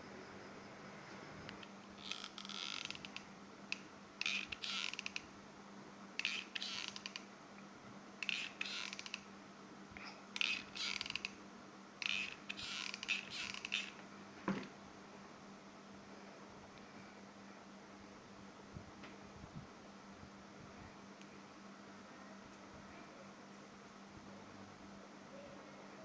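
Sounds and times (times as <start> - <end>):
glue gun creaking and clicking: 2.0 - 5.2, 6.2 - 7.2, 8.2 - 9.2, 10.4 - 11.4, 12.0 - 14.0.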